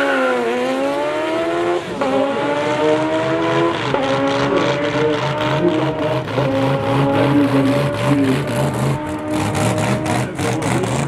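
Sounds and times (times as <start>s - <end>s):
motorcycle engines at full throttle: 0.0s - 11.0s
quick gear upshifts: 0.5s - 11.0s.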